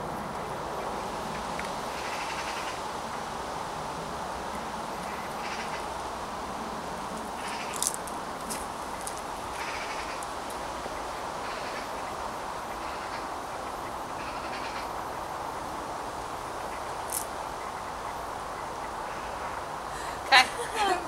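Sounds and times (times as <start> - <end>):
outdoor background noise: 0.0 - 21.0
bird calling: 5.0 - 6.0, 7.3 - 15.1.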